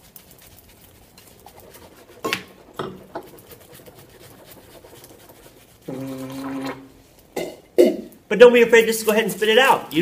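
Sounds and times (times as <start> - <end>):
slurping sips from a glass: 5.9 - 7.5.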